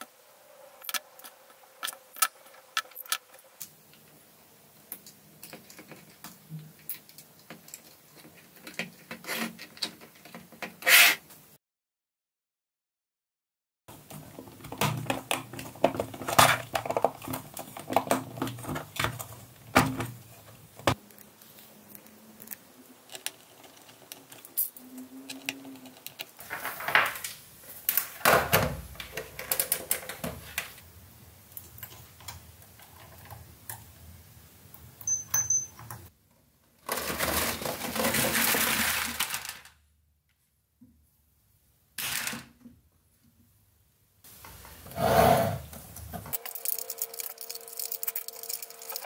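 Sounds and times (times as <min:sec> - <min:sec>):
plastic packs rattling onto a mat: 0:36.8 - 0:39.8.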